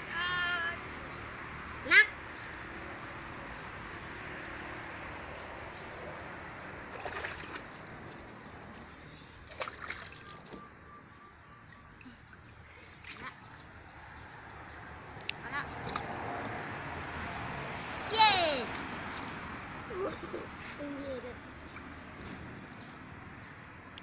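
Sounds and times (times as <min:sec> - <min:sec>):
water splashing in pool: 0:02.5 - 0:10.9, 0:11.6 - 0:19.5.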